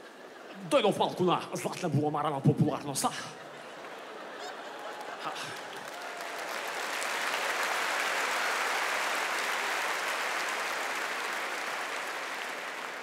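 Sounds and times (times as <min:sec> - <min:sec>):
large audience applauding: 0:03.8 - 0:13.0.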